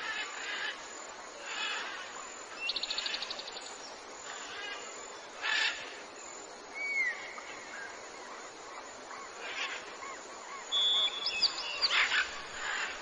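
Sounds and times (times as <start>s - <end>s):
background hiss: 0.0s - 13.0s
small birds singing: 0.0s - 13.0s.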